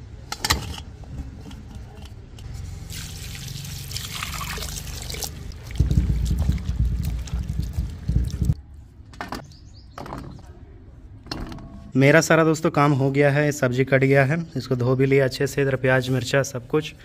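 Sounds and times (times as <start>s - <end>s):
water splashing: 2.9s - 8.6s.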